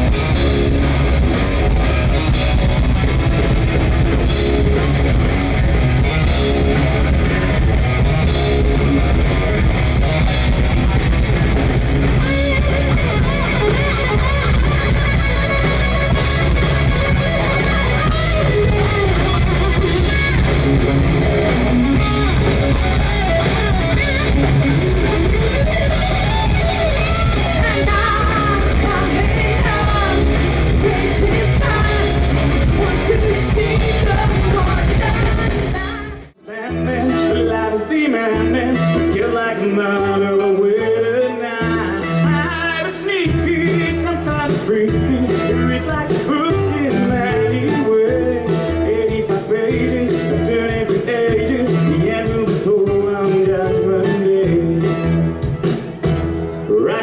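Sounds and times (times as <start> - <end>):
drums: 0.0 - 57.0
electric guitar: 0.0 - 57.0
woman singing: 27.6 - 32.2, 32.8 - 36.3.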